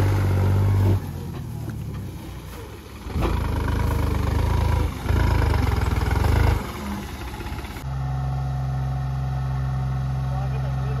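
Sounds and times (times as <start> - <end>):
tractor diesel engine: 0.0 - 11.0.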